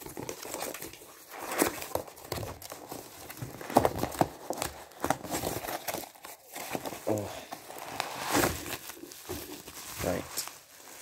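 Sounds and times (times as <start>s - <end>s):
cardboard crumpling and crackling: 0.0s - 11.0s
cardboard ripping: 0.0s - 11.0s.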